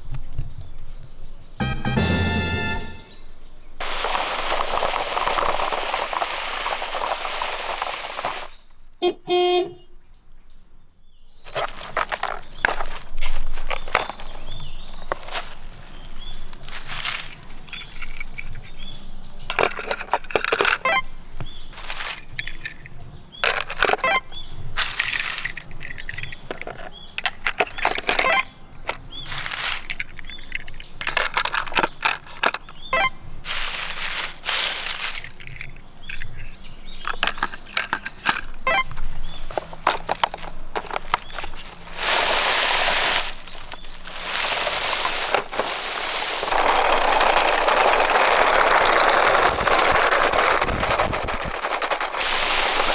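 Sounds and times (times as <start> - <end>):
short chime: 1.6 - 3.2
dry leaves crunching: 3.8 - 8.8, 11.4 - 18.0, 21.5 - 22.7, 24.7 - 25.7, 29.1 - 30.8, 33.4 - 35.6, 39.0 - 52.9.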